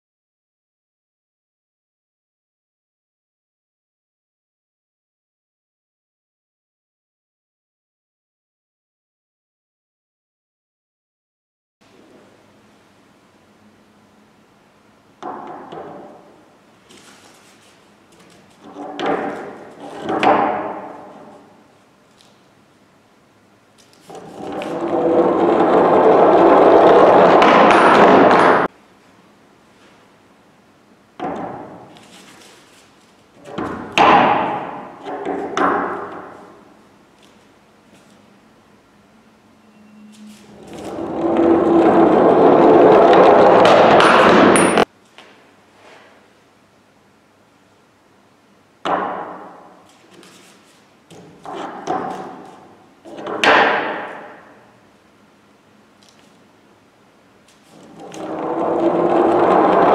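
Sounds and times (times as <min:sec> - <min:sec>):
knocks and scrapes on wood: 0:15.2 - 0:21.5, 0:24.0 - 0:28.7, 0:48.9 - 0:54.5, 0:57.6 - 0:59.9
metal cylinders rolling on wood: 0:24.1 - 0:28.7, 0:40.4 - 0:44.8, 0:57.7 - 0:59.9.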